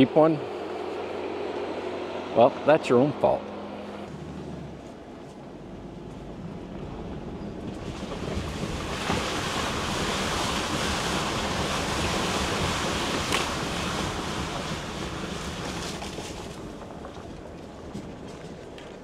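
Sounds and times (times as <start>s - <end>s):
tyres splashing through mud: 6.0s - 19.0s.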